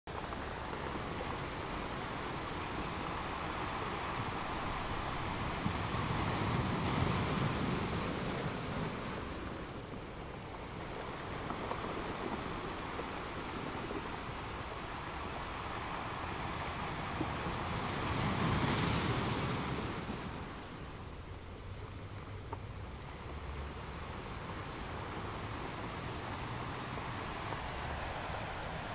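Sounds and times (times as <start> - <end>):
sea water lapping: 0.1 - 28.9
wind buffeting microphone: 0.1 - 28.9.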